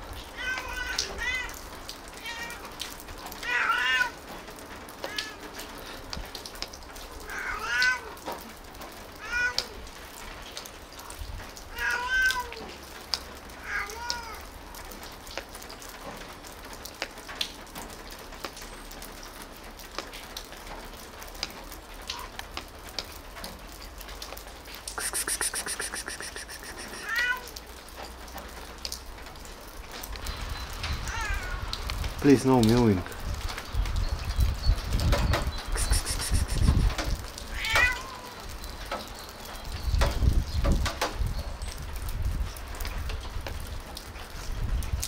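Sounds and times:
cat meowing: 0.4s - 1.6s, 2.2s - 2.8s, 3.4s - 4.2s, 7.2s - 8.2s, 9.2s - 9.8s, 11.7s - 12.6s, 13.6s - 14.5s, 25.0s - 27.6s, 31.0s - 31.6s, 37.5s - 38.5s
faint ticks: 24.2s - 27.1s.

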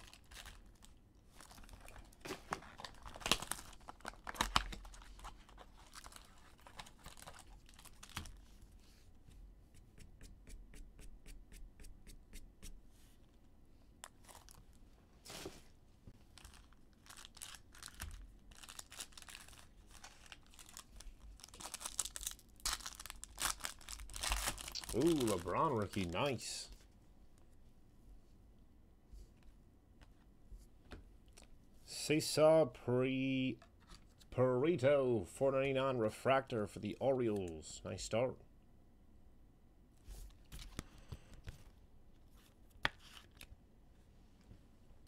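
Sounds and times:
foil pack tearing open: 0.0s - 8.3s, 16.4s - 26.2s
cardboard and plastic rustling: 0.0s - 8.5s.

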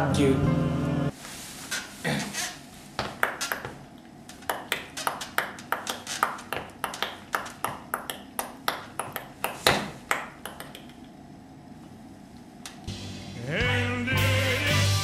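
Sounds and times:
ping-pong ball clicks: 4.4s - 11.0s.

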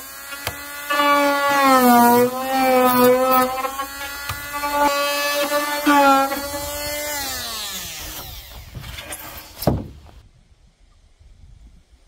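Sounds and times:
power tool motor whining: 0.0s - 9.7s
sharp thump: 9.6s - 10.1s.

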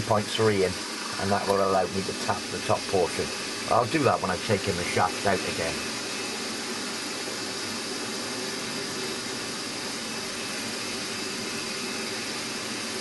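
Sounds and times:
drill boring through metal: 0.0s - 13.0s.

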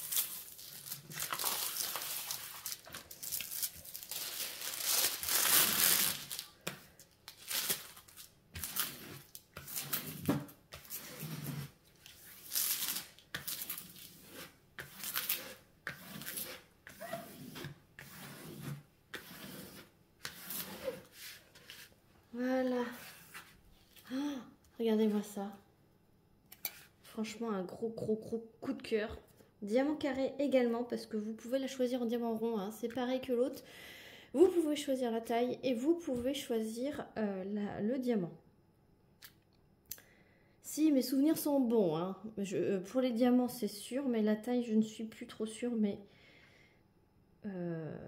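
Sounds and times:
plastic film crinkling: 0.0s - 11.4s, 12.0s - 15.6s.

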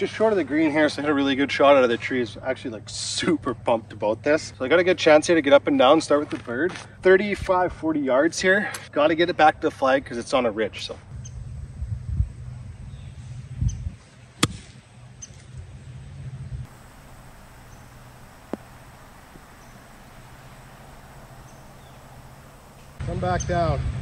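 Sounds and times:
golf club striking ball: 16.7s - 23.0s.

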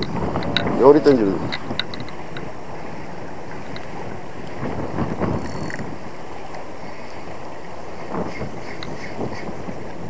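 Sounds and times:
wind buffeting microphone: 0.0s - 10.0s
fishing reel whirring: 1.4s - 4.5s, 5.1s - 6.0s.

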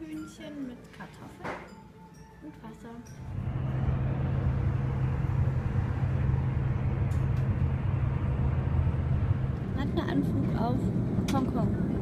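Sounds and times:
engine and tyre drone: 3.3s - 12.0s.

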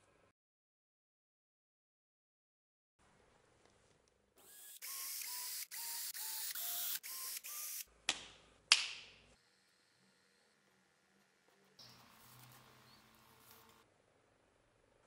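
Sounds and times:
cordless drill bursts: 4.4s - 7.9s.

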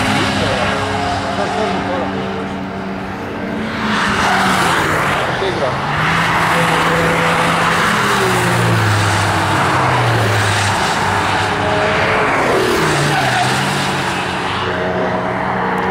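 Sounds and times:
cars passing at speed: 0.0s - 15.9s.

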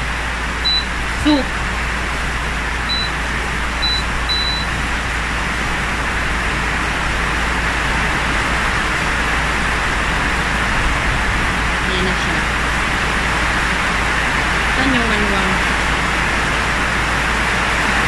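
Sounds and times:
short high beeps: 0.6s - 0.9s, 2.9s - 3.2s, 3.8s - 4.8s.

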